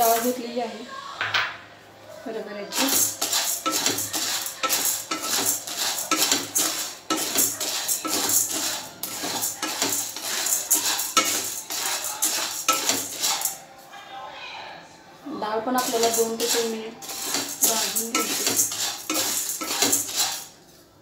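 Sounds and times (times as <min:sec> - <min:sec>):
lentils rattling and scraping in pan: 0:02.7 - 0:13.6, 0:15.8 - 0:20.6.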